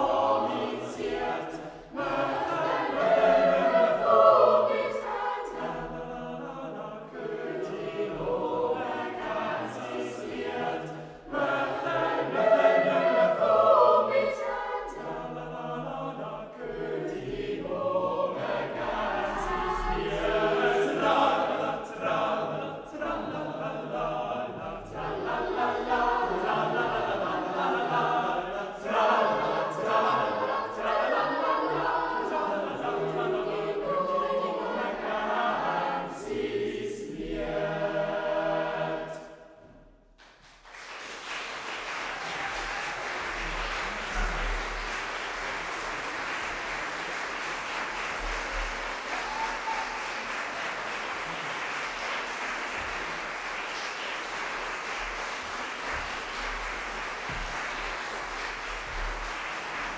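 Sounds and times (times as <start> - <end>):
boys' choir singing a cappella: 0.0 - 39.6.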